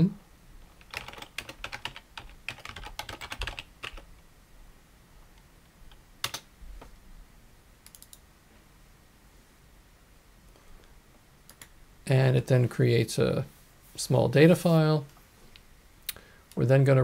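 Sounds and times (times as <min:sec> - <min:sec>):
typing on a computer keyboard: 0:00.8 - 0:04.1, 0:05.9 - 0:06.5, 0:07.8 - 0:08.2.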